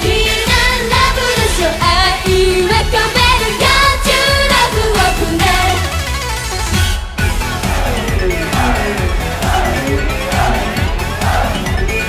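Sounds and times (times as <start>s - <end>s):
women singing pop music: 0.0s - 6.2s
pop accompaniment with steady beat: 0.0s - 12.0s.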